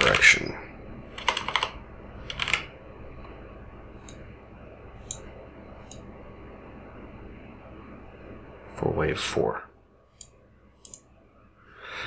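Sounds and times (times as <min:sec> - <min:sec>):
computer mouse clicks: 0:01.2 - 0:01.7, 0:10.2 - 0:11.0.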